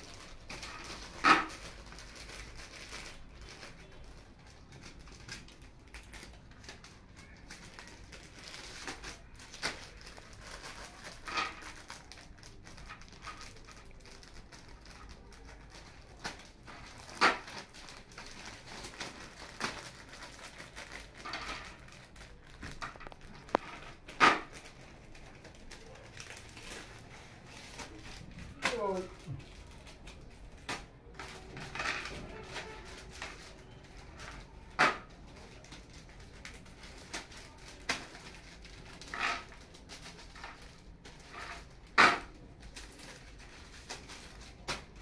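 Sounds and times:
incense sticks clicking and rattling: 0:00.0 - 0:28.0
plastic bag crinkling: 0:00.0 - 0:45.0.

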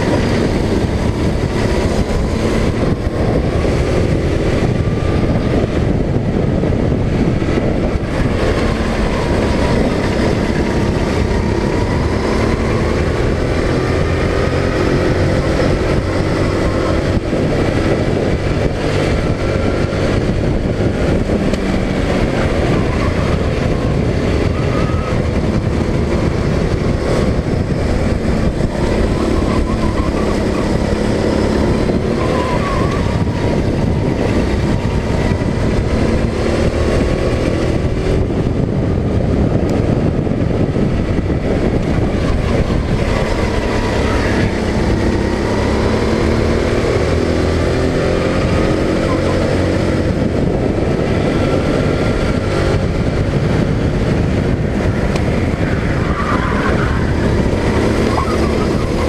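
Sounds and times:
go-kart engine revving: 0:00.0 - 0:59.0
rushing wind noise: 0:00.0 - 0:59.0.

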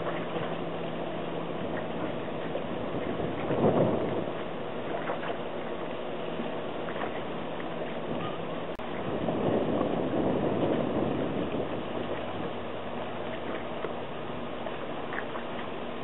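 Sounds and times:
wind rushing on microphone: 0:01.7 - 0:05.2, 0:08.0 - 0:12.7.

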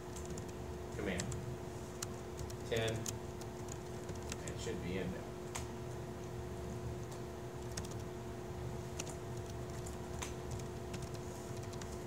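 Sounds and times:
laptop keyboard typing: 0:00.0 - 0:04.7, 0:07.0 - 0:08.2, 0:08.8 - 0:12.0
low room hum: 0:00.0 - 0:12.0.

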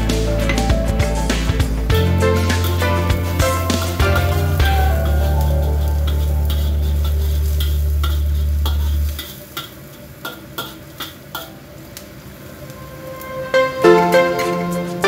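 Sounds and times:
loud low hum: 0:00.0 - 0:09.0
light sizzle: 0:00.0 - 0:15.0
spatula scraping and tapping wok: 0:02.0 - 0:11.6.

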